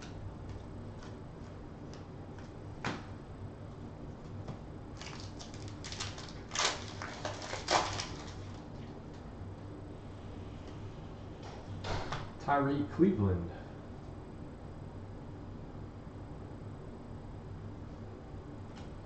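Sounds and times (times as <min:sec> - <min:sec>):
foil wrapper crinkling and tearing: 0:05.0 - 0:08.8.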